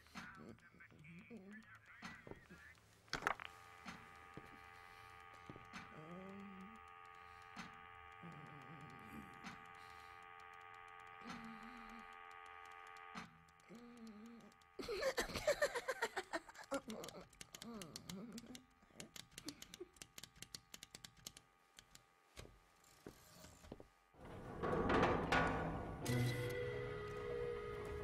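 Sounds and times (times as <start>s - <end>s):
rapid clicking and chattering: 0.0s - 22.1s
electrical hum of held tones: 0.0s - 28.0s.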